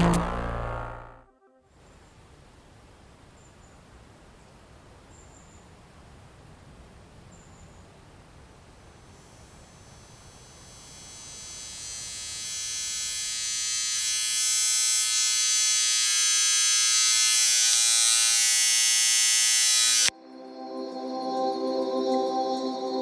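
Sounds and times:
tattoo machine buzzing: 0:00.0 - 0:01.1, 0:09.0 - 0:20.1
soft ambient music: 0:20.1 - 0:23.0.

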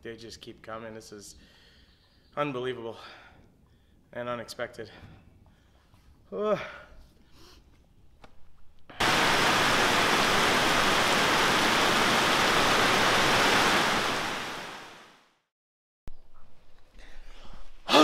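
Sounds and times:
heavy rain pouring: 0:09.0 - 0:15.2.

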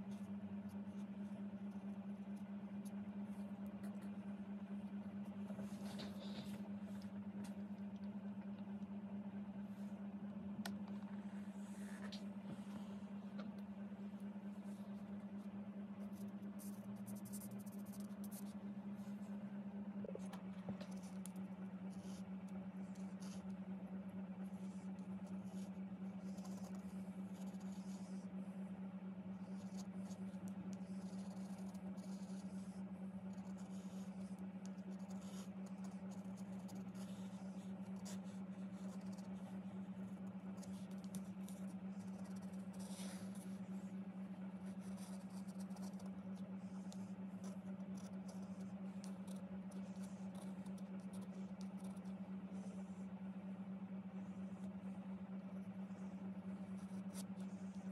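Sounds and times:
low hum: 0:00.0 - 0:57.9
pencil scratching on cardboard: 0:14.5 - 0:19.2, 0:20.8 - 0:23.6, 0:24.5 - 0:28.4, 0:29.3 - 0:53.0, 0:54.4 - 0:57.9.

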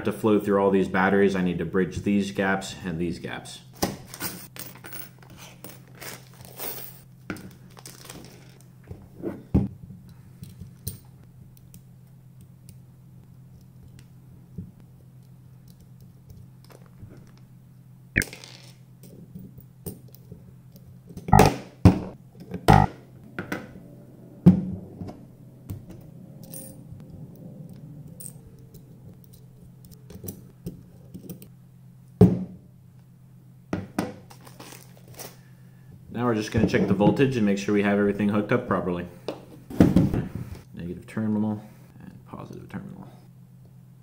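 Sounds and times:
small metal parts clinking: 0:04.4 - 0:07.1
faint low hum: 0:04.6 - 0:33.7.

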